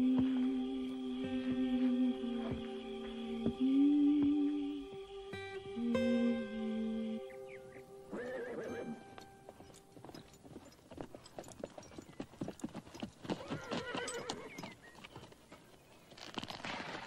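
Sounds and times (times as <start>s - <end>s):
horses whinnying: 8.1s - 9.0s, 13.4s - 14.8s
hoofbeats on dirt: 8.2s - 17.0s.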